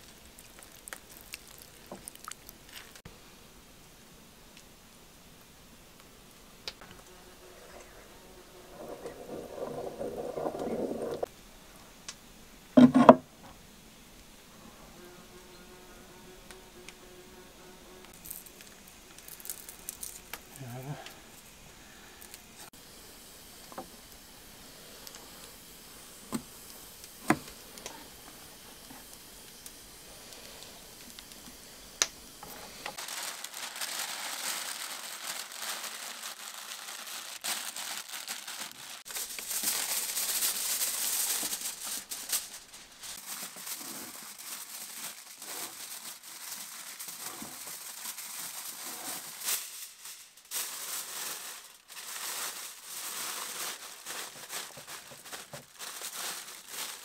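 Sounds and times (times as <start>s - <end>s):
kitchen foil crinkling: 0.0s - 3.1s, 8.5s - 11.3s, 18.1s - 22.7s, 26.2s - 57.0s.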